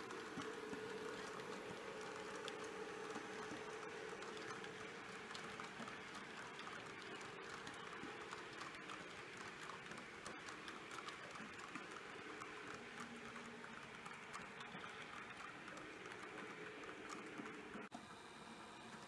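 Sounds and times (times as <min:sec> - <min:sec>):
model train wheels clicking on track: 0:00.0 - 0:17.9
faint steady hum: 0:00.0 - 0:19.0.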